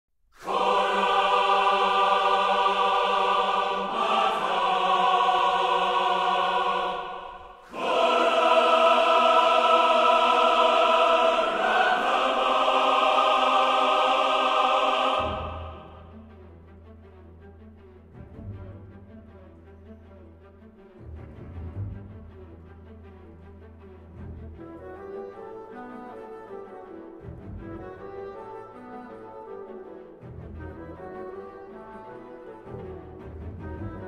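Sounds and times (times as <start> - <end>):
choir singing held chords: 0.4 - 16.2.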